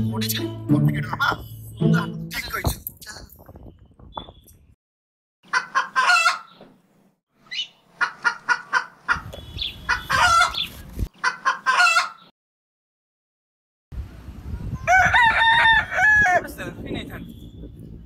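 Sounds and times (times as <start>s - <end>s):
chicken clucking: 5.5s - 6.6s, 8.0s - 12.3s.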